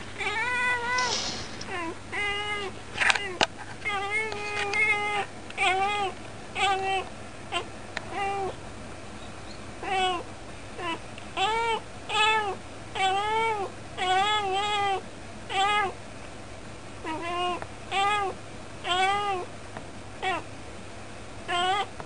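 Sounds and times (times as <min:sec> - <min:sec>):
cat meowing: 0:00.2 - 0:08.5, 0:09.8 - 0:10.2, 0:10.8 - 0:16.0, 0:17.0 - 0:19.5, 0:20.2 - 0:20.5, 0:21.5 - 0:21.9.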